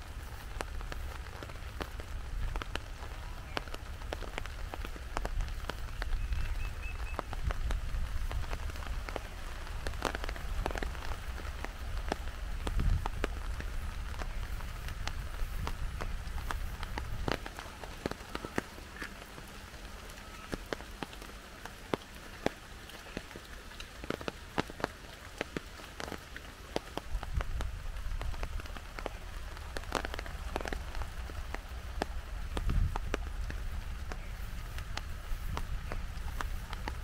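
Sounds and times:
heavy rain: 0.0s - 37.0s
raindrops striking a surface: 0.0s - 37.0s.

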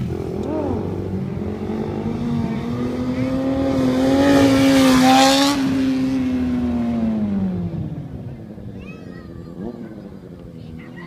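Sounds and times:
motorcycle engine at high revs: 0.0s - 8.7s.

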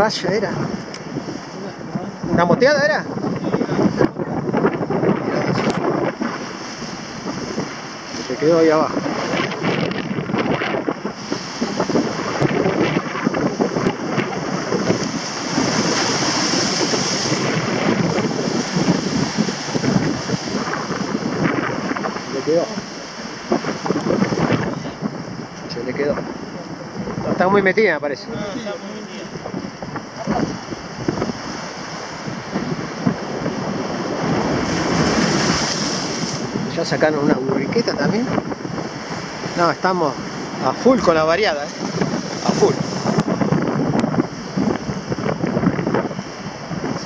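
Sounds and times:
sea waves breaking over rocks: 0.0s - 47.0s
wind buffeting microphone: 0.0s - 47.0s.

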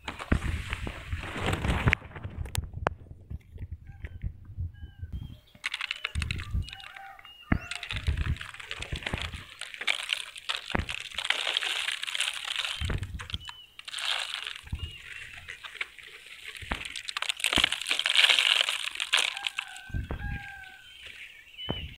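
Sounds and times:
palm fronds rustling: 0.0s - 3.6s, 5.5s - 21.9s
chicken calling: 3.8s - 21.9s
salt crunching in hand: 5.6s - 21.9s
salt pattering onto fronds: 5.6s - 21.9s.

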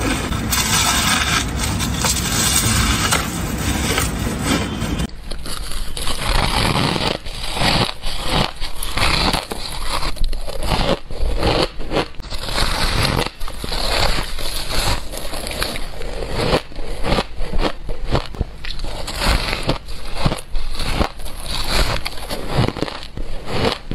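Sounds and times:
ice being chewed: 5.3s - 23.9s.

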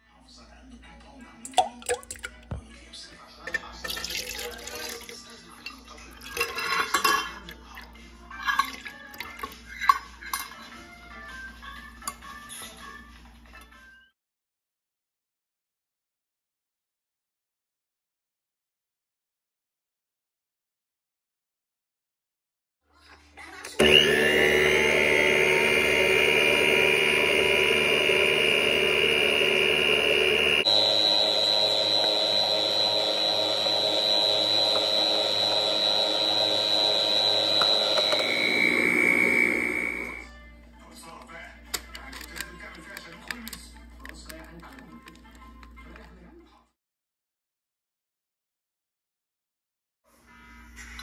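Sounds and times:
milk pouring into metal bowl: 3.5s - 9.6s
beater churning batter in steel bowl: 23.8s - 40.2s
stand mixer motor whine: 23.8s - 40.3s.

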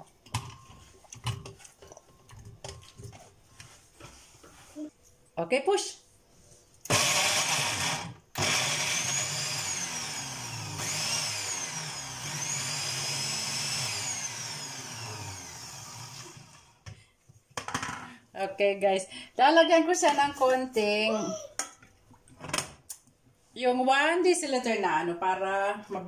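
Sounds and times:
blender pureeing fruit: 6.9s - 16.8s.

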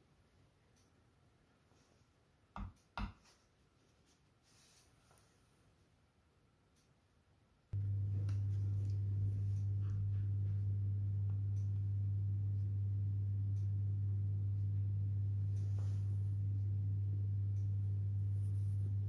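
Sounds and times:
low electrical hum: 5.4s - 19.0s.

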